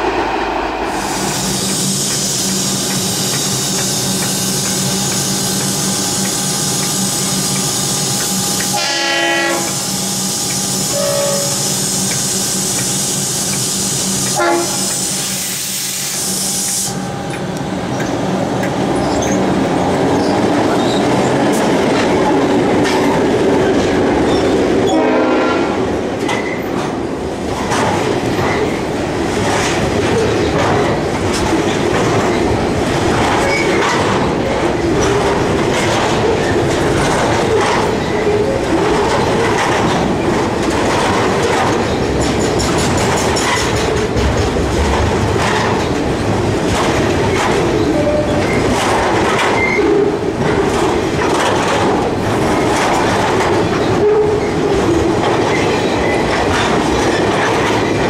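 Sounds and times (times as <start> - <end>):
electric train humming and hissing: 0.0 - 44.1
diesel locomotives rumbling: 0.0 - 58.0
train horn: 8.7 - 9.9, 10.9 - 11.7, 14.4 - 15.0, 24.9 - 25.9
wagons clattering over rail joints: 29.4 - 58.0.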